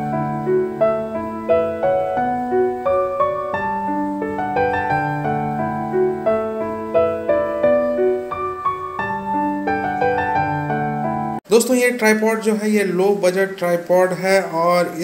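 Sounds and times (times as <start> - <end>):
piano music: 0.0 - 11.5.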